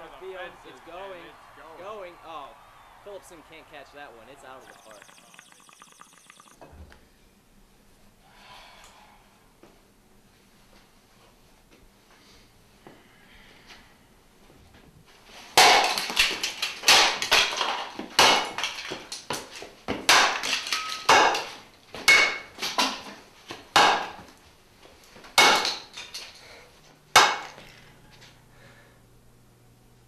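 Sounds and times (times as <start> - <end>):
baseball bat striking floor: 15.6 - 24.4, 25.3 - 26.2, 27.2 - 28.0.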